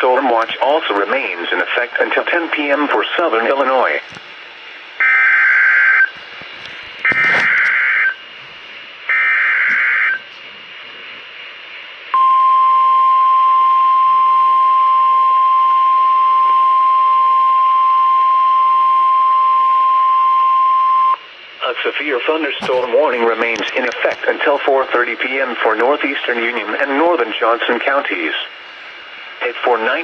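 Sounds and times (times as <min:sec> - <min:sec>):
steady alarm tone: 0:05.0 - 0:06.2, 0:07.0 - 0:08.4, 0:09.0 - 0:10.3.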